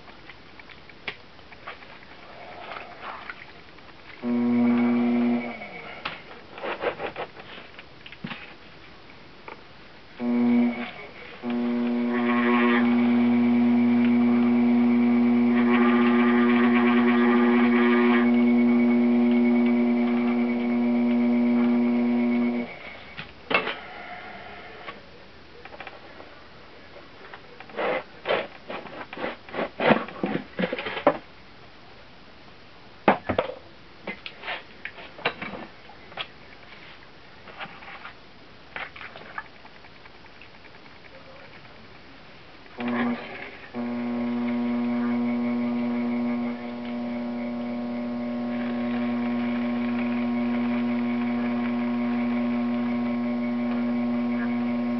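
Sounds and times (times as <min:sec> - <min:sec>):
potter's wheel motor humming: 0:04.2 - 0:05.9, 0:10.2 - 0:22.8, 0:42.8 - 0:54.9.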